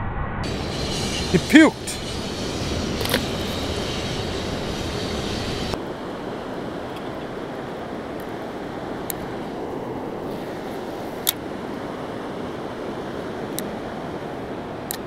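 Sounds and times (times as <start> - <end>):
wind on microphone: 0.0 - 14.9
river water rushing: 5.8 - 15.0.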